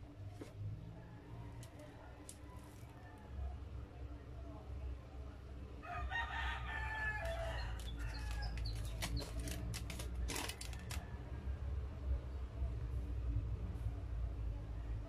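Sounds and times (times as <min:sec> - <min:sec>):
rooster crowing: 0:05.8 - 0:08.7.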